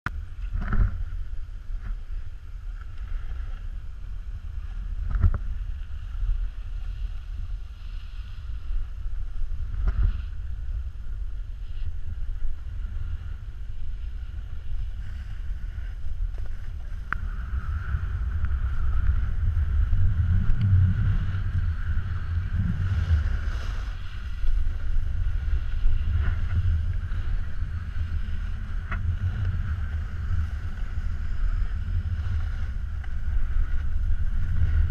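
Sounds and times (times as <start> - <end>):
wind buffeting microphone: 0.1 - 34.9
snowboard scraping snow: 14.0 - 34.9.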